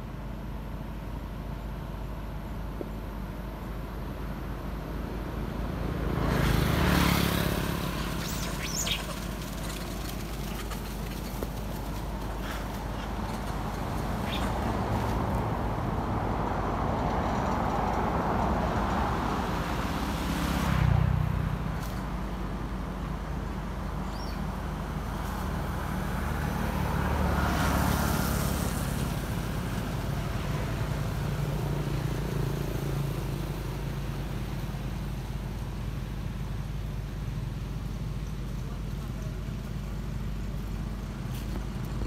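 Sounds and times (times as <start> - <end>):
traffic engine rumble: 0.0 - 42.0
vehicles passing: 0.0 - 42.0.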